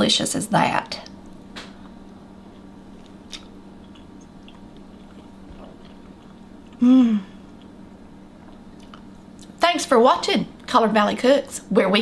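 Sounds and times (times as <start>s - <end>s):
steady low hum: 0.0s - 12.0s
person chewing food: 1.3s - 9.6s
person humming mm: 6.8s - 7.4s.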